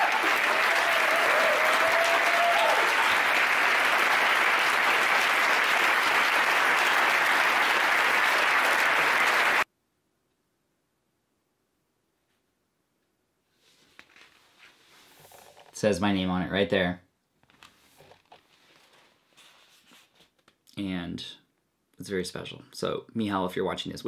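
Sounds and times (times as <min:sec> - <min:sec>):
person whooping: 0:00.0 - 0:03.2
audience applauding: 0:00.0 - 0:09.7.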